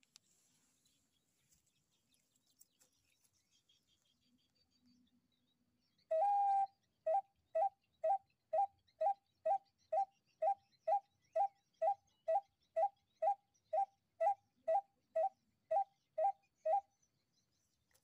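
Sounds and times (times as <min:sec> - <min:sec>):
pipe bird call hooting: 0:06.1 - 0:16.8.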